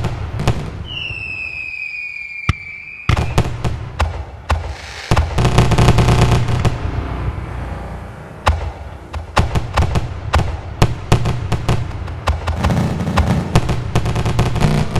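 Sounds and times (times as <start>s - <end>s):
rapid firework crackling: 0.0s - 7.1s, 8.5s - 14.9s
firework bangs: 0.0s - 14.9s
firework whistling: 0.4s - 3.8s, 4.5s - 7.2s.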